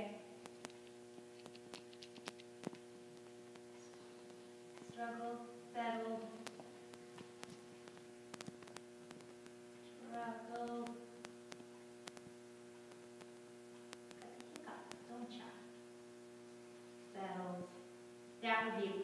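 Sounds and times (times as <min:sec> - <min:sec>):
electrical mains hum: 0:00.0 - 0:19.0
faint clicks: 0:06.4 - 0:10.0, 0:10.6 - 0:15.0.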